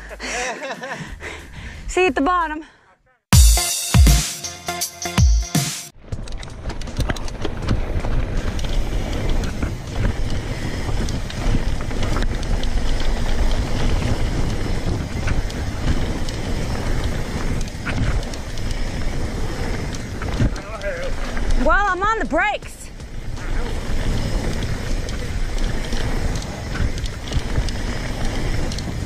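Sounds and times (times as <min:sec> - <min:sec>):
bike clicks and rattles: 0:06.0 - 0:29.0
bike tyres rolling on dirt: 0:06.0 - 0:29.0.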